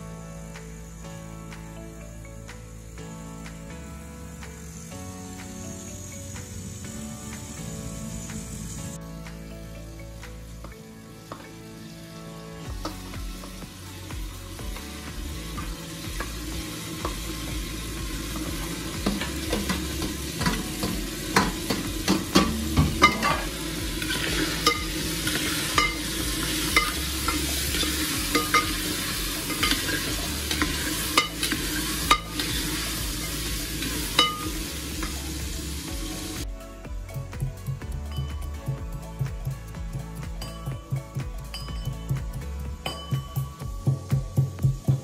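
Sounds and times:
meat sizzling in a pot: 9.6 - 36.5
spoon knocking against pot: 19.0 - 32.6.

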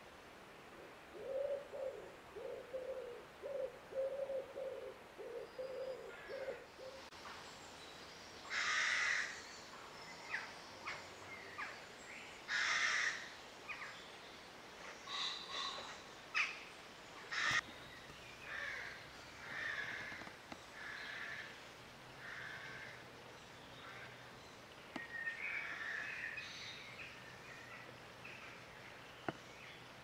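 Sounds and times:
dove cooing: 1.1 - 7.1
rooks cawing: 8.5 - 9.4, 12.5 - 13.3, 17.3 - 17.6, 18.5 - 21.5, 22.2 - 23.0
small birds chirping: 23.4 - 30.0.

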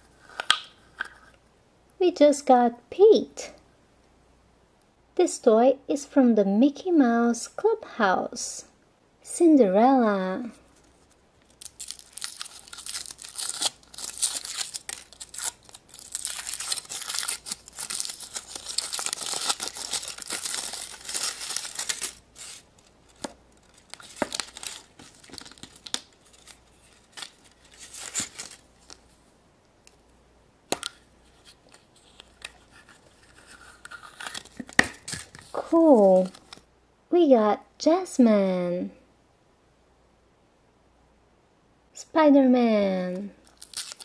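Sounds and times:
chocolate and plastic capsule cracking: 0.3 - 1.2, 11.4 - 29.0, 32.2 - 35.6, 43.4 - 44.0
foil wrapper crinkling: 10.9 - 29.0, 31.4 - 36.6, 43.4 - 44.0.

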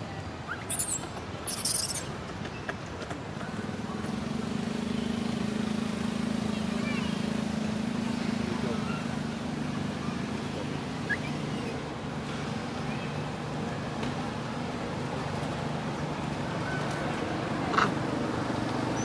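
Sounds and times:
traffic engine hum: 0.0 - 19.0.

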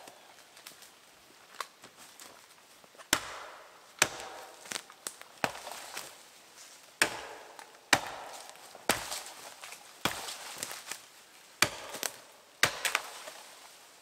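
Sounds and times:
axe chopping into tree: 3.1 - 6.1, 7.0 - 10.8, 11.6 - 13.4.

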